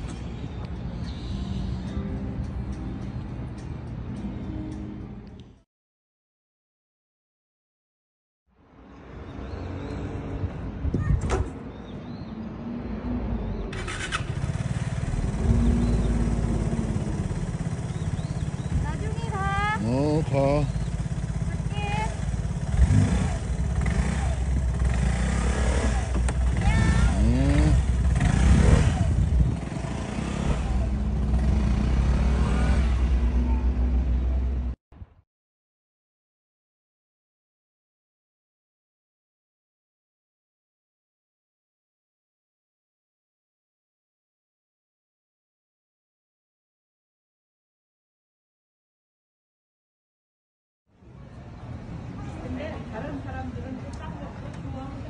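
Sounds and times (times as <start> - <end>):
scooter engine idling: 13.8 - 32.3.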